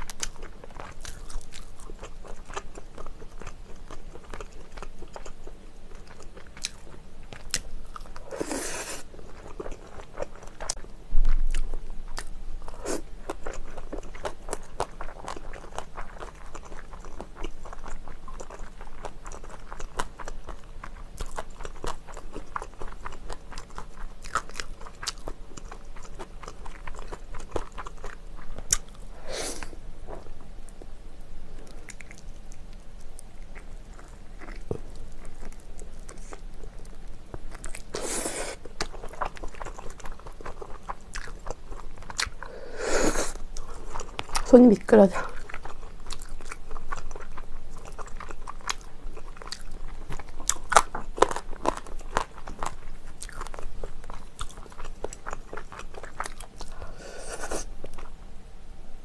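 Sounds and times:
biting and chewing: 0:00.0 - 0:05.4, 0:45.2 - 0:58.1.

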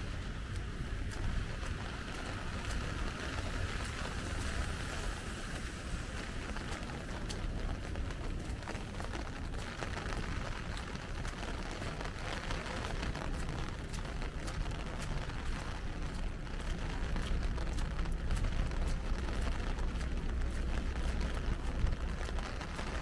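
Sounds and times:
low rumble: 0:00.0 - 0:23.0
rain hiss on wet street: 0:00.0 - 0:23.0
sharp ticks of raindrops: 0:00.0 - 0:23.0.

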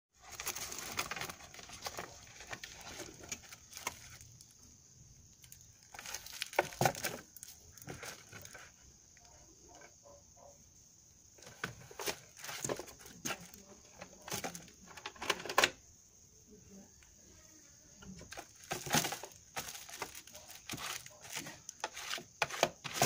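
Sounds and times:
cat rustling plastic wrappers: 0:00.2 - 0:04.5, 0:05.4 - 0:08.6, 0:18.3 - 0:22.2.

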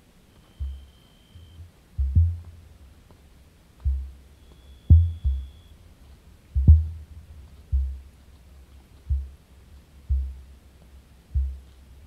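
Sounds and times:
feet clicking on stony ground: 0:03.8 - 0:12.0
emus booming: 0:04.8 - 0:05.6.

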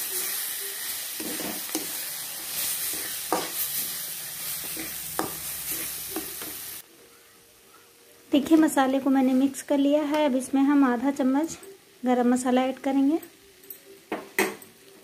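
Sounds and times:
vegetables sizzling in pan: 0:00.0 - 0:06.8, 0:08.3 - 0:13.4.

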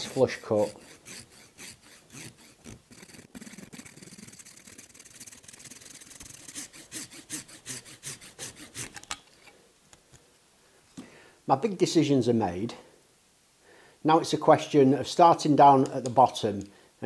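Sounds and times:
hand saw cutting wood: 0:00.0 - 0:09.1.

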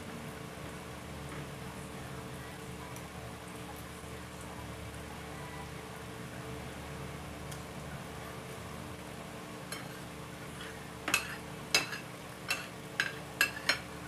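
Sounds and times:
low background hum: 0:00.0 - 0:14.0
cutlery clinking on a plate: 0:09.7 - 0:10.0, 0:11.1 - 0:13.9.

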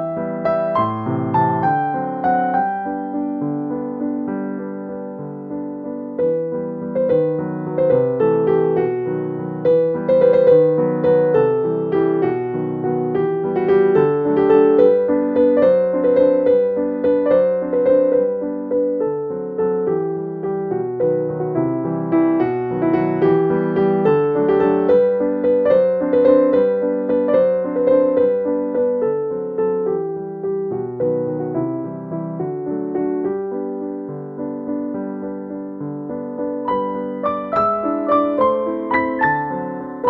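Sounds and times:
keyboard music: 0:36.4 - 0:40.0.

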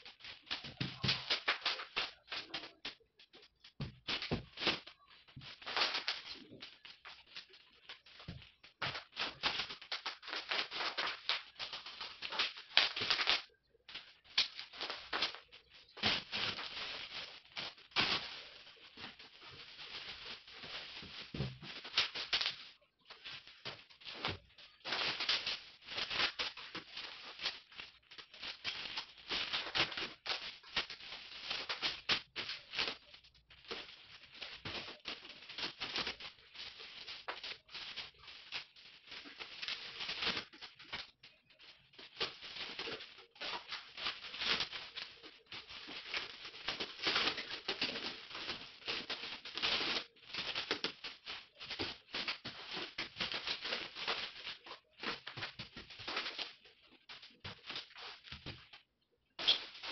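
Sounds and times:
plastic wrap crinkling: 0:00.0 - 0:59.9.

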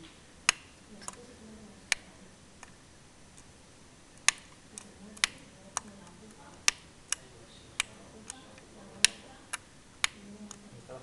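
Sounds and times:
faint low murmur: 0:04.2 - 0:11.0.

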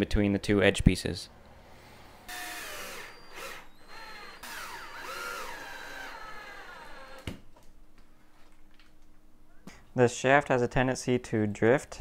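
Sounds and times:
cordless drill motor whine: 0:02.2 - 0:07.3.

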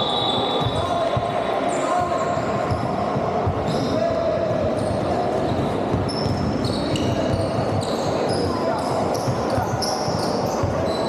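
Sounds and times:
voices in a hall: 0:00.0 - 0:11.0
shoes squeaking on floor: 0:04.7 - 0:11.0.

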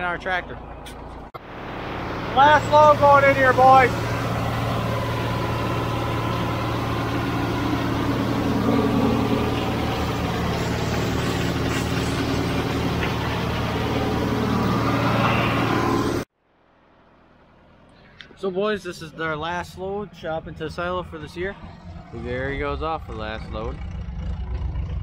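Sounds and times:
tractor engine running: 0:00.0 - 0:16.3, 0:19.4 - 0:25.0
silage blower whirring: 0:01.4 - 0:16.3.

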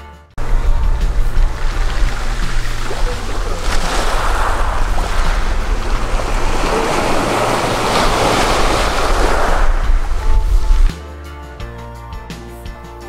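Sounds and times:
small waves on pebble beach: 0:00.4 - 0:10.9
wind buffeting microphone: 0:00.4 - 0:10.9.

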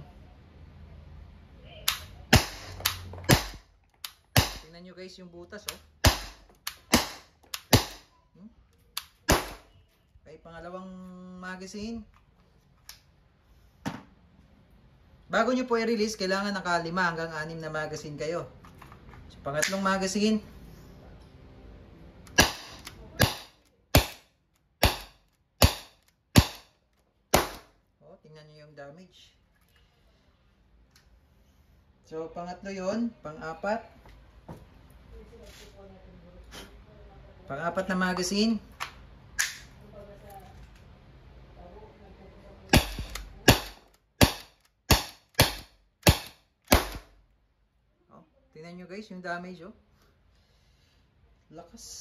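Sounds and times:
air revolver shots popping: 0:01.9 - 0:04.7, 0:05.7 - 0:08.1, 0:09.2 - 0:09.6, 0:22.3 - 0:24.2, 0:24.8 - 0:26.7, 0:27.3 - 0:27.7, 0:42.7 - 0:47.1
revolver shots: 0:04.3 - 0:04.7.

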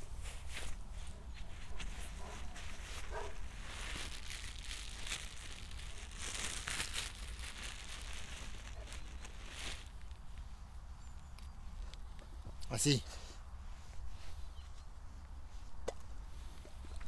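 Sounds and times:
rustling and crinkling: 0:00.0 - 0:13.0.

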